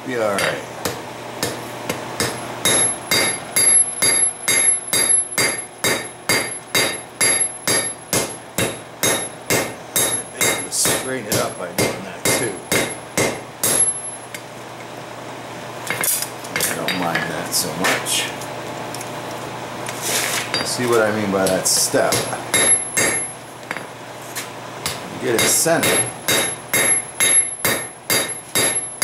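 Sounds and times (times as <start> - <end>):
hammer blows ringing on anvil: 2.2 - 14.2, 22.1 - 23.4, 24.8 - 29.0.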